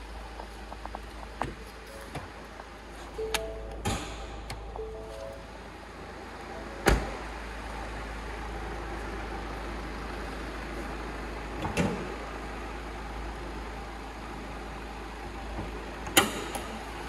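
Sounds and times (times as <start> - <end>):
low hum: 0.0 - 10.2
car door slamming: 6.8 - 7.2.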